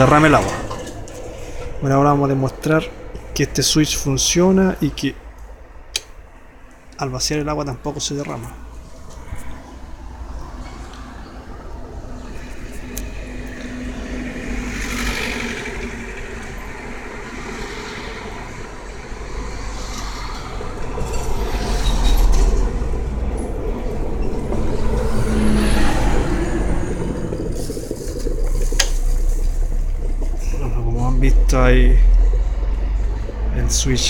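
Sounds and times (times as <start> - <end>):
electric kettle boiling: 24.7 - 34.0.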